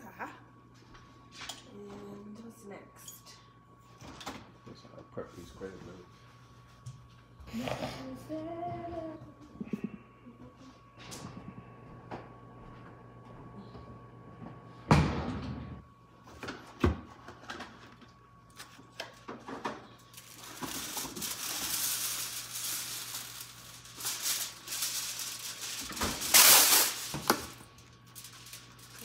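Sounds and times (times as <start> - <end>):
rustling and crinkling: 17.6 - 29.0.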